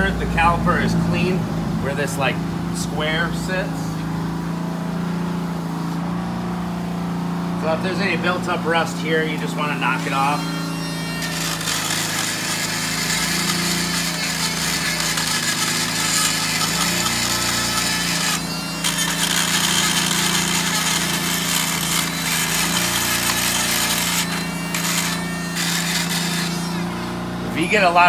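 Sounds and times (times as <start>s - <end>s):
rotary tool grinding rust: 8.2s - 28.0s.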